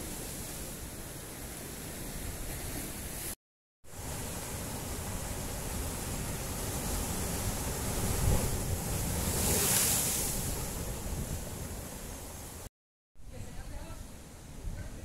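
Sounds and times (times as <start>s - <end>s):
sea surf surging into rocks: 0.0s - 12.7s
wave breaking against rocks: 4.6s - 12.6s.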